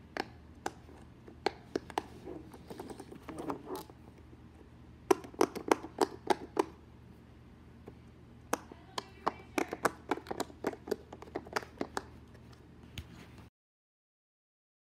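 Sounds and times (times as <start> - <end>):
fidget toy bubbles popping: 5.1 - 6.8.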